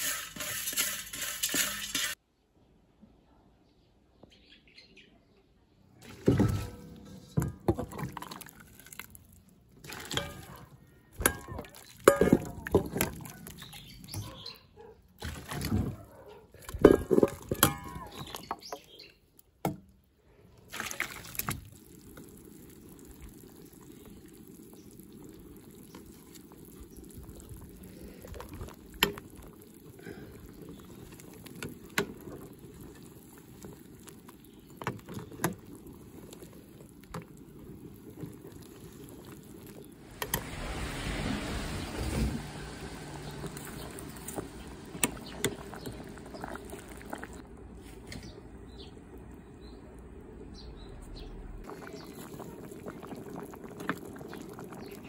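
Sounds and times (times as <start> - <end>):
clatter against metal pot: 0.0 - 2.2, 9.9 - 13.3, 16.6 - 18.8
pot boiling rumble: 0.0 - 2.2, 6.0 - 55.0
water splashing and pouring: 0.0 - 2.2, 6.0 - 14.4, 15.2 - 18.9, 20.4 - 47.5, 51.6 - 55.0.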